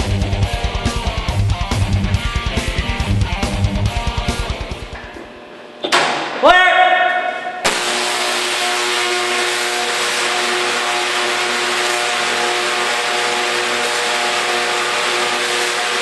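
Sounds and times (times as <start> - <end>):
tesla coil buzzing hiss: 7.7 - 16.0.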